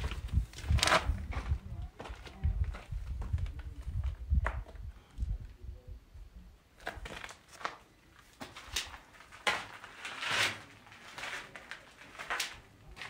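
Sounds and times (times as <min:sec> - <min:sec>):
footsteps crunching: 0:06.8 - 0:13.0.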